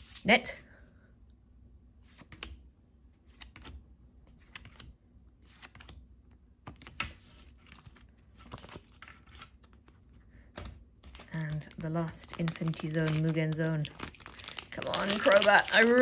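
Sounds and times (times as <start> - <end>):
cards shuffling: 3.2 - 6.0, 6.6 - 16.0.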